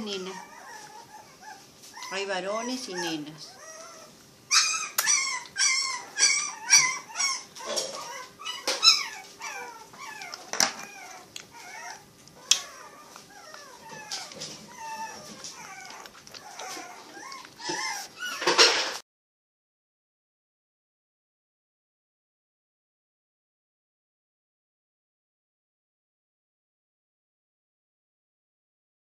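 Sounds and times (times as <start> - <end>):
puppies whimpering and crying: 0.0 - 19.0.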